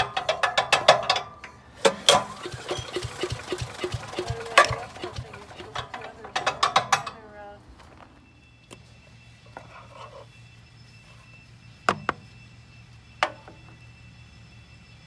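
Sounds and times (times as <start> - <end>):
sharp mechanical clicks and rattles: 0.0 - 7.2.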